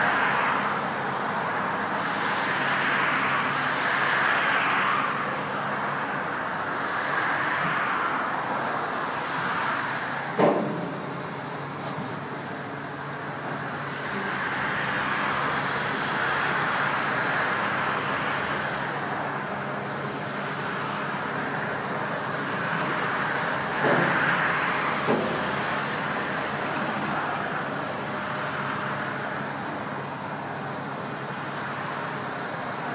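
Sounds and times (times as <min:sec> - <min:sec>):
engine rumble: 0:00.0 - 0:32.9
sharp knocks: 0:10.4 - 0:11.3.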